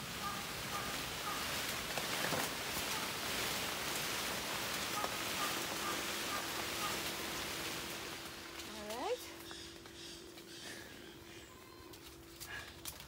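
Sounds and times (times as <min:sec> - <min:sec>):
steady hiss: 0:00.0 - 0:09.1
leaves and branches rustling: 0:00.0 - 0:13.0.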